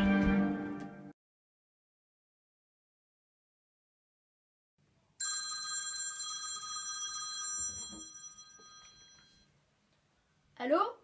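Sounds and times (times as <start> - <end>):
mobile phone ringing: 5.2 - 9.5
phone being picked up knock: 7.4 - 9.3.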